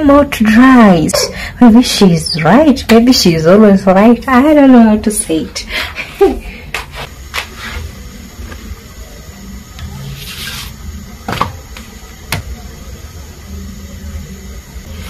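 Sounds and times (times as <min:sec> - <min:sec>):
low steady background hum: 0:00.0 - 0:07.2.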